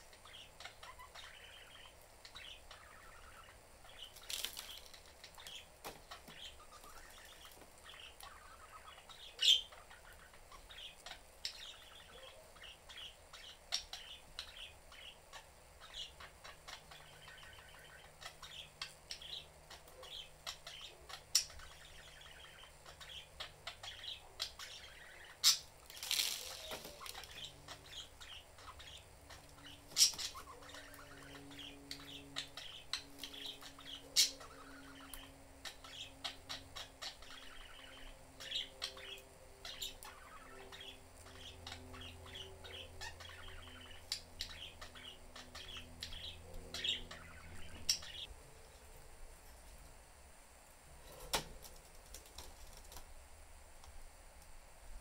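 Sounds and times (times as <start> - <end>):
budgerigars chirping: 0.0 - 48.3
wings fluttering: 4.0 - 7.9, 25.8 - 28.0, 51.0 - 53.2.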